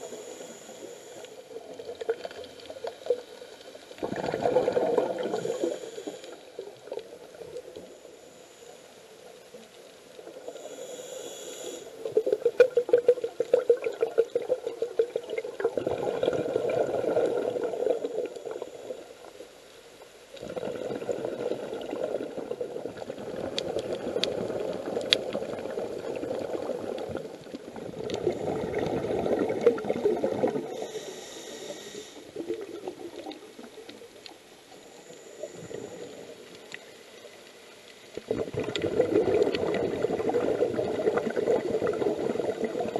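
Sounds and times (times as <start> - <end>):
hissing regulator inhalations: 0.0 - 1.5, 5.2 - 6.6, 10.4 - 12.2, 30.7 - 32.4
bubbling exhalations: 4.0 - 5.8, 12.2 - 18.1, 20.4 - 30.7, 38.2 - 42.9.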